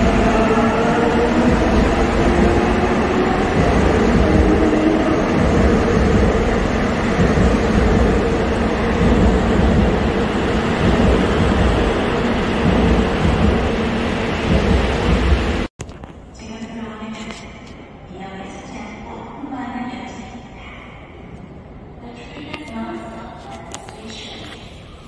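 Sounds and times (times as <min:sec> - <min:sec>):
subway train rumbling past: 0:00.0 - 0:15.7.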